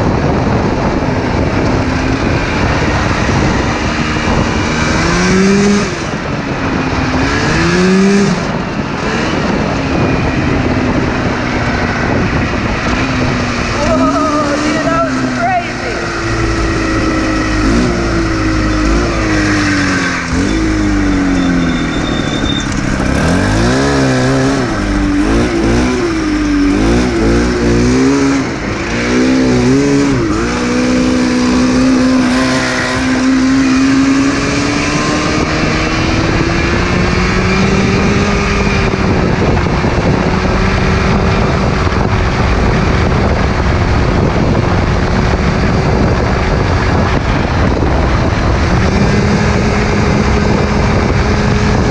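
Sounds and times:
two-stroke engine revving: 0.0 - 51.9.

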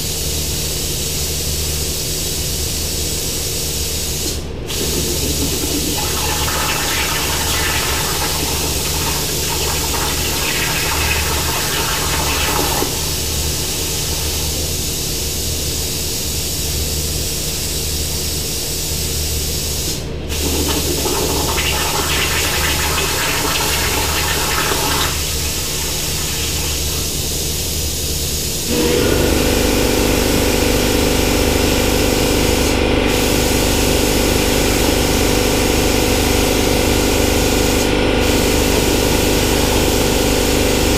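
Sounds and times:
loud steady machine hum: 0.0 - 40.9
plasma torch arc hissing: 2.3 - 20.8, 22.7 - 28.8.

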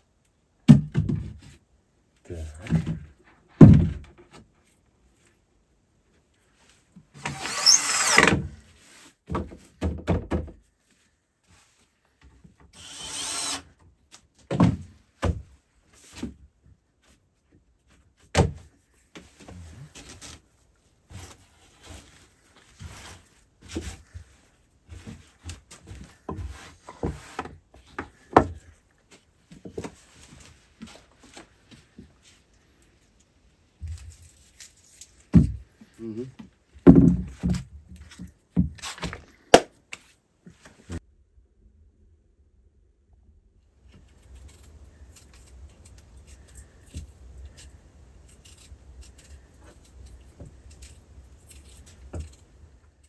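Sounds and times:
cordless drill running: 7.3 - 8.3, 12.8 - 13.6
wood knocking: 36.8 - 37.6.

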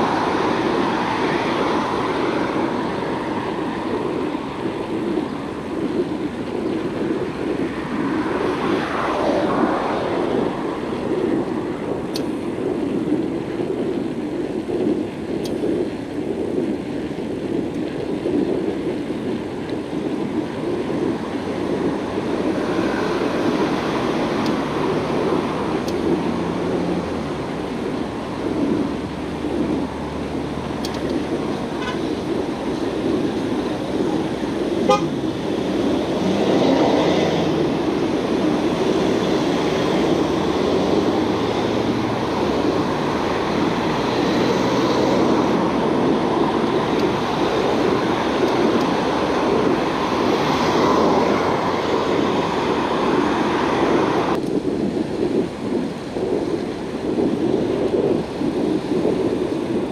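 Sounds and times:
road traffic passing: 0.0 - 59.9.

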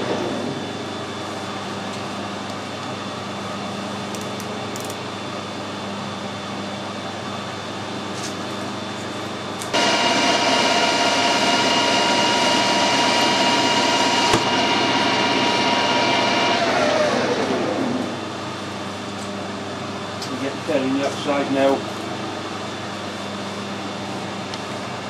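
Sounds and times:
metal lathe hum: 9.7 - 18.2
lathe spindle whine: 9.7 - 18.3.

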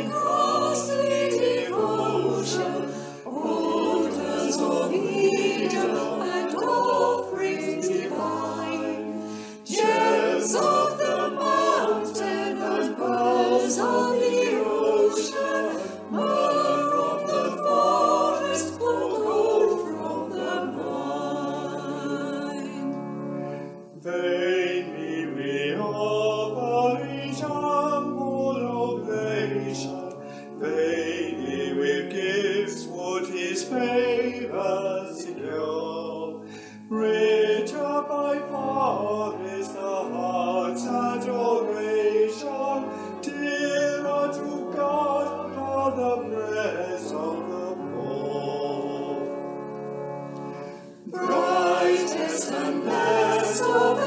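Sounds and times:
choir singing a hymn: 0.0 - 54.0.

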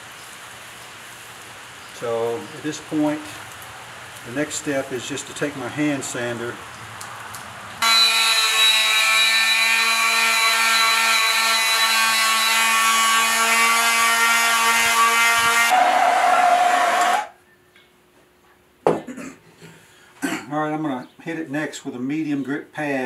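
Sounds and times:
electric sander whining: 7.8 - 15.8.

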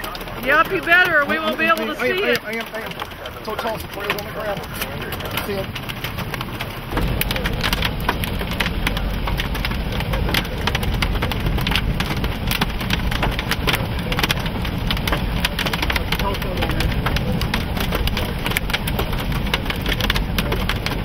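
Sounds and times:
raindrops ticking on hard surface: 0.0 - 21.0
low rumble: 3.1 - 21.0.

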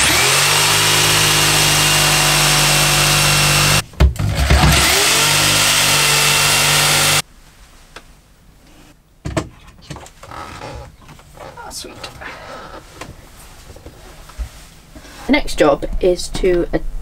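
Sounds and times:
jigsaw cutting wood: 0.0 - 7.2.

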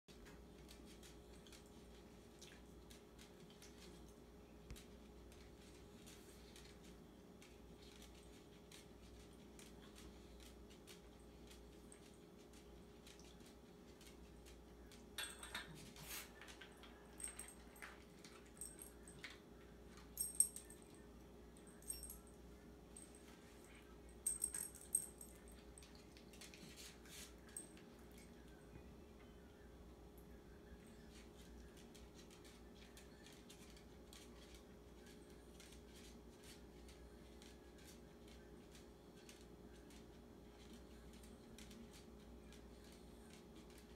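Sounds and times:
dog collar tag jingling: 24.2 - 25.7.

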